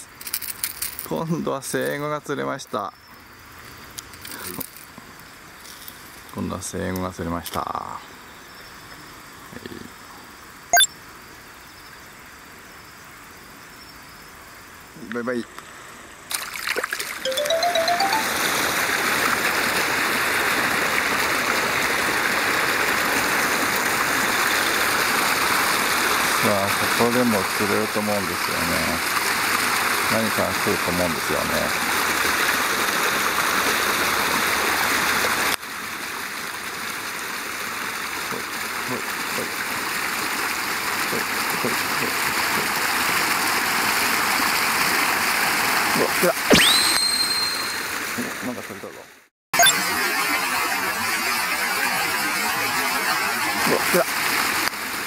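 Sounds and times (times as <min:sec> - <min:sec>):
running water rushing: 0:16.3 - 0:48.7, 0:52.2 - 0:55.0.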